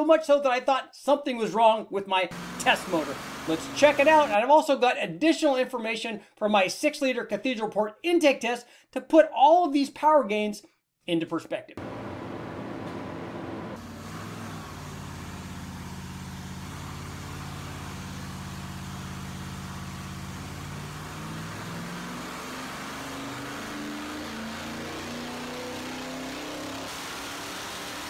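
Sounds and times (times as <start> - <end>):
engine revving on dyno: 2.3 - 4.4, 11.8 - 28.0.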